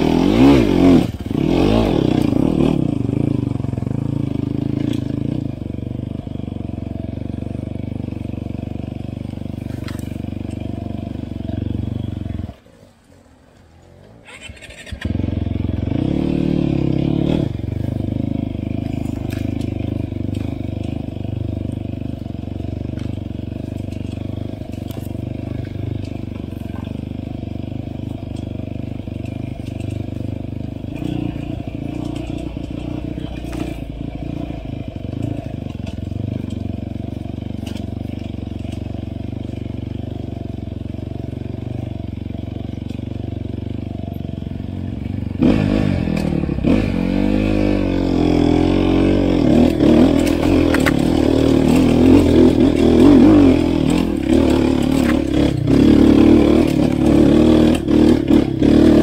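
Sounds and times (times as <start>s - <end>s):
dirt bike engine revving: 0.0s - 12.6s, 14.2s - 59.0s
knocks and clatter: 49.0s - 59.0s.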